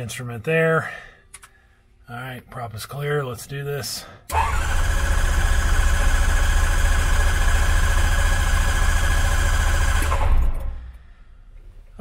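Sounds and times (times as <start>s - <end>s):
aircraft engine cranked by starter: 4.3s - 11.0s.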